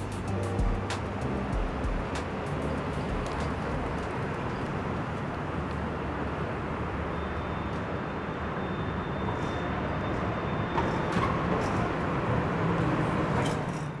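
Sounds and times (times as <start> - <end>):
traffic rumble: 0.0 - 10.5.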